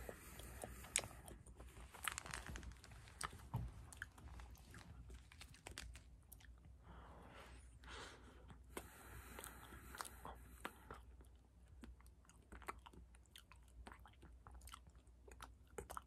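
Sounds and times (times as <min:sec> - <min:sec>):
wet sticky chewing: 0:08.7 - 0:16.0.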